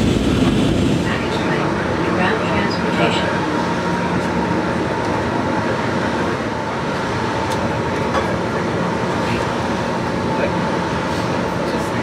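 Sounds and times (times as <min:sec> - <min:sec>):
train rumbling in tunnel: 0:00.0 - 0:12.0.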